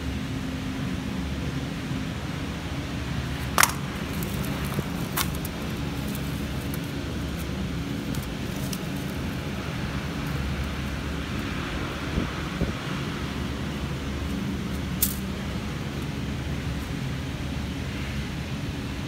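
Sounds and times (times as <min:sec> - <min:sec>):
low mechanical rumble: 0:00.0 - 0:19.0
wire clicking: 0:03.4 - 0:09.5.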